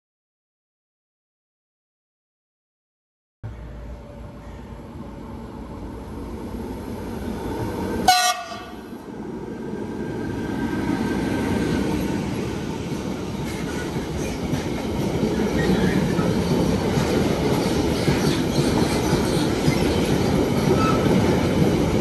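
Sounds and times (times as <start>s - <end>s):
train rumble: 3.5s - 22.0s
train horn toot: 8.0s - 8.8s.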